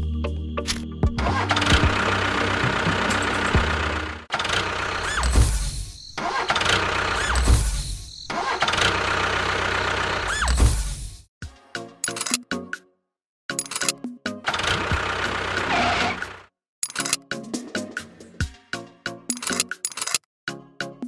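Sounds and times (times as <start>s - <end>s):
vehicle engine: 1.2s - 11.0s, 14.4s - 16.5s.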